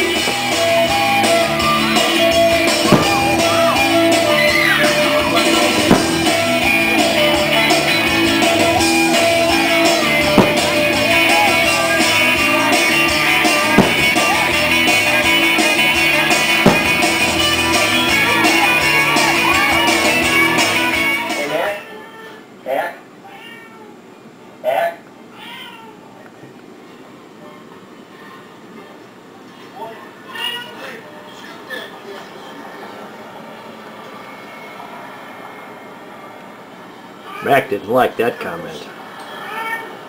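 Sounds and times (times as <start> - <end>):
rock song with guitar and singing: 0.0 - 21.4
sharp bangs: 1.4 - 19.4.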